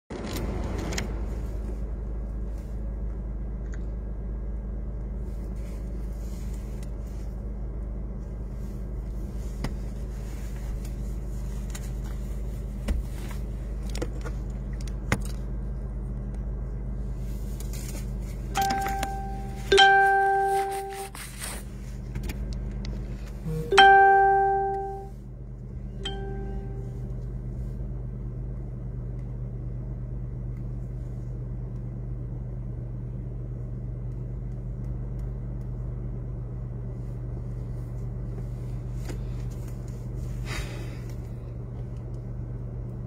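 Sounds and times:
car engine idling: 0:00.5 - 0:43.0
pitched tone: 0:18.6 - 0:21.3, 0:23.4 - 0:25.1, 0:26.0 - 0:27.0.

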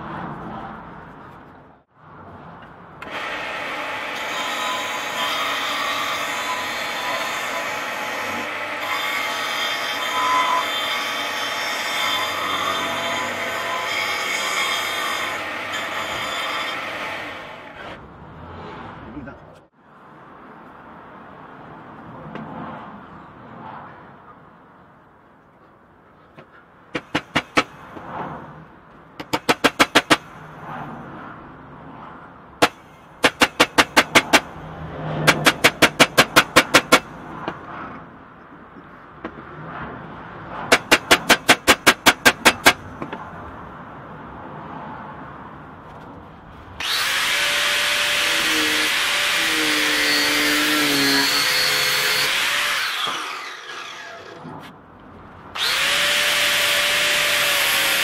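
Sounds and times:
angle grinder running: 0:46.8 - 0:54.4, 0:55.6 - 0:58.0.

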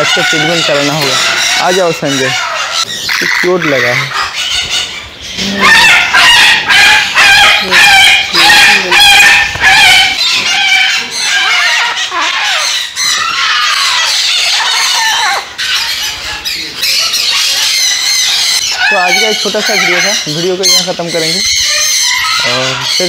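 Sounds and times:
bird calls: 0:00.0 - 0:23.0
rooster crowing: 0:05.5 - 0:12.5.

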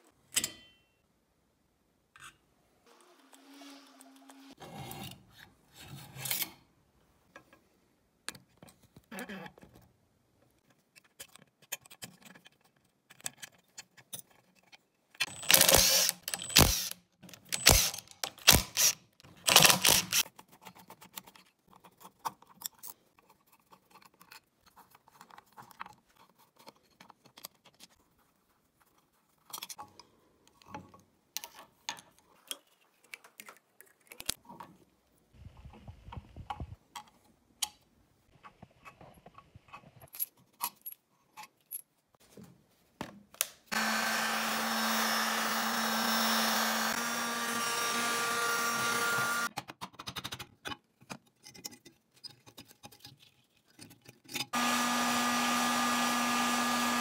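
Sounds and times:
metal parts and tools clinking: 0:13.1 - 0:18.8.

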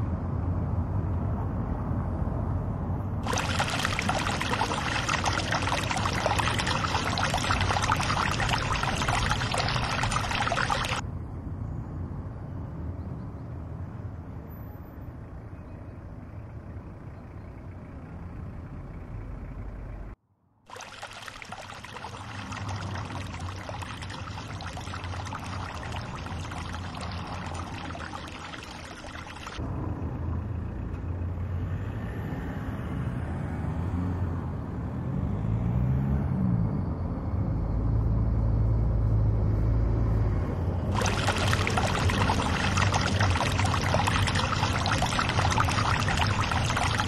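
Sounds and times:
distant traffic hum: 0:00.0 - 0:47.0
fountain spray splashing: 0:03.2 - 0:11.0, 0:20.7 - 0:29.6, 0:40.9 - 0:47.0.

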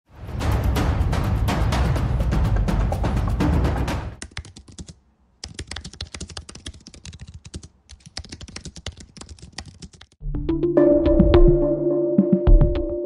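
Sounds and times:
rapid keyboard typing: 0:04.2 - 0:10.2.

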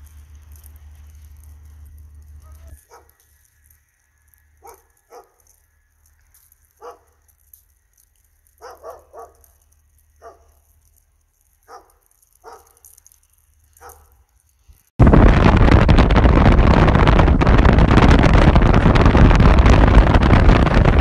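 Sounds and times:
faint dog barks: 0:02.4 - 0:03.2, 0:04.6 - 0:05.5, 0:06.8 - 0:07.2, 0:08.6 - 0:09.5, 0:10.2 - 0:10.7, 0:11.6 - 0:12.8, 0:13.7 - 0:14.2.

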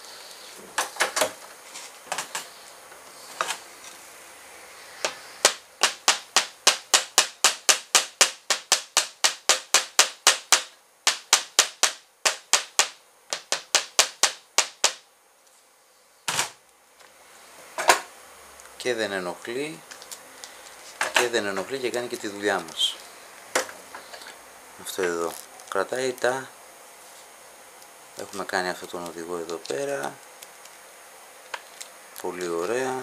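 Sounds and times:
small hammer tapping metal: 0:05.4 - 0:15.0.

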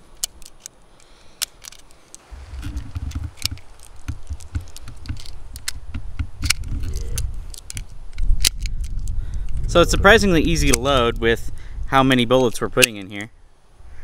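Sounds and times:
cartridges clicking into magazine: 0:00.0 - 0:02.2, 0:07.5 - 0:09.2
low microphone rumble: 0:02.2 - 0:07.5.

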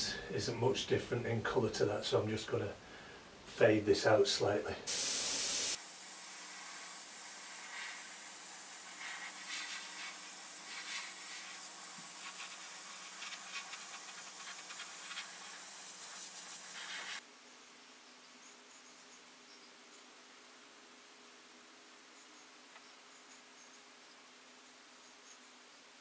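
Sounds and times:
airbrush hissing: 0:04.9 - 0:17.2.

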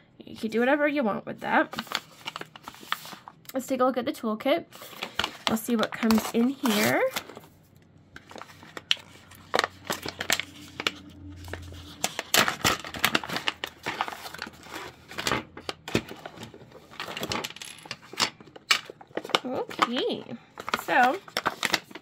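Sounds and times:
pouch crinkling and rustling: 0:08.2 - 0:15.2.

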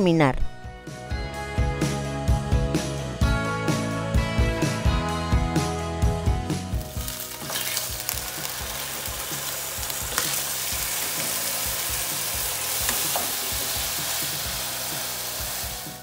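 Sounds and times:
meat sizzling in oil: 0:06.7 - 0:16.0.

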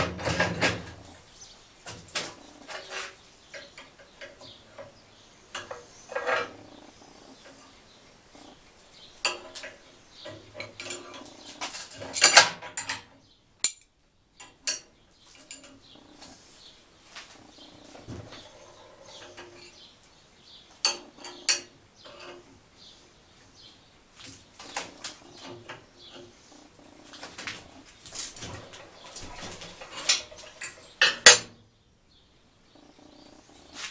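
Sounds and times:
steel pieces clanking on worktable: 0:13.6 - 0:15.8.

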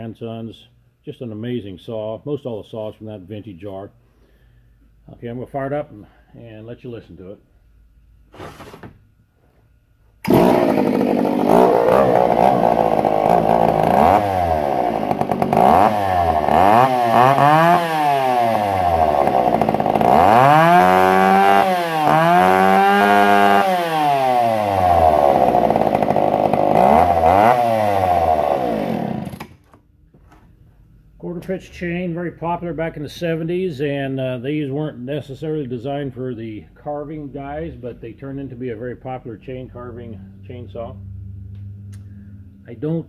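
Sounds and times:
two-stroke chainsaw revving and idling: 0:10.2 - 0:29.6.

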